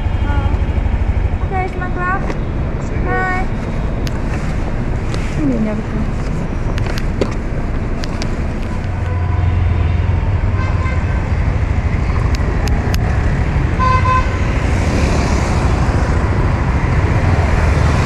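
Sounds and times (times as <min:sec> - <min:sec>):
scooter engine and road rumble: 0:00.0 - 0:18.0.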